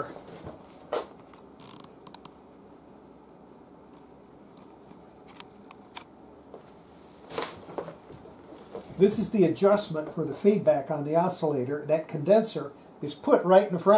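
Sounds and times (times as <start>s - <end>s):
small clicks and taps: 1.2s - 2.4s.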